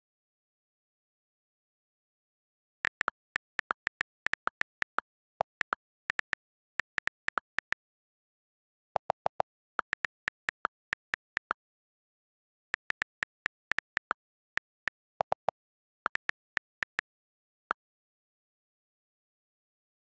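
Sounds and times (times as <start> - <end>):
keyboard key clicks: 2.8 - 7.8.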